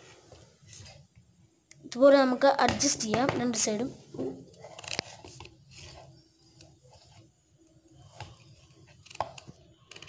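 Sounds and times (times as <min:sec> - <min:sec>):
rubbing and handling noise: 0:02.8 - 0:10.0.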